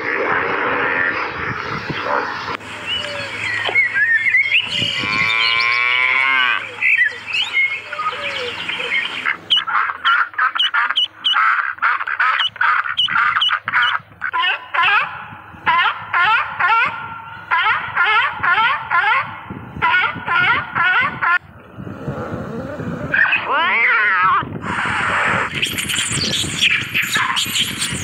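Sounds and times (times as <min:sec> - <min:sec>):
long falling animal call: 0:02.6 - 0:21.4.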